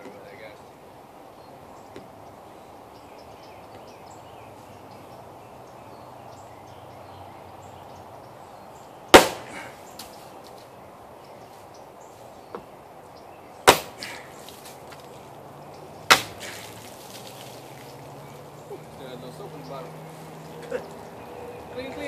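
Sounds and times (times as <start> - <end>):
knife chopping plastic bottle: 16.1 - 16.7.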